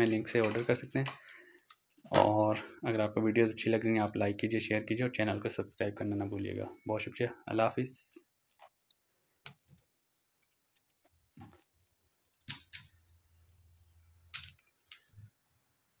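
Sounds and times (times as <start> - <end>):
plastic hangers clattering: 0.0 - 2.4.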